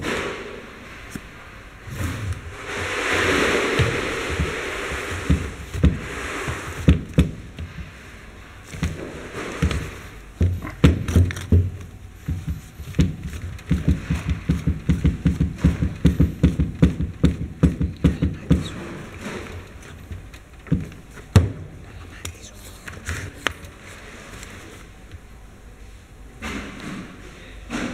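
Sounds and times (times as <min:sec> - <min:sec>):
grease gun knocking on wood: 0:10.4 - 0:18.7.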